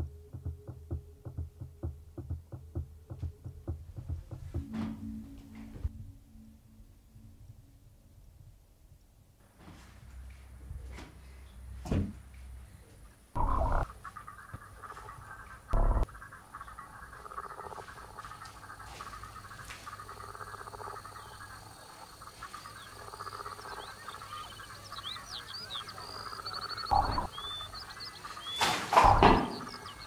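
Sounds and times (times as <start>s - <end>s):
frogs croaking: 13.0s - 30.0s.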